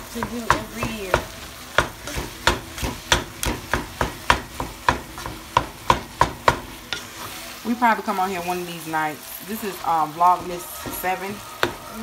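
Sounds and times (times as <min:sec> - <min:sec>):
wooden spoon knocking on pan: 0:00.1 - 0:07.1, 0:10.3 - 0:12.0.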